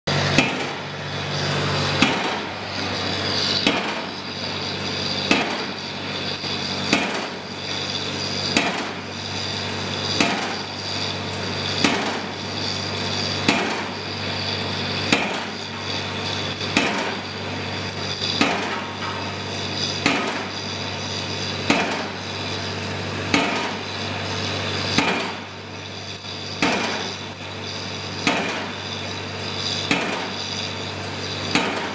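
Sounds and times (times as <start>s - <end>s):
piling hammer striking: 0.2s - 0.9s, 1.6s - 9.0s, 10.0s - 10.7s, 11.6s - 12.4s, 13.4s - 13.9s, 15.1s - 15.6s, 16.8s - 17.2s, 18.3s - 19.2s, 20.0s - 20.5s, 21.6s - 22.2s, 23.3s - 23.8s, 24.9s - 25.4s, 26.5s - 27.2s, 28.2s - 28.7s, 29.7s - 30.5s, 31.5s - 31.9s.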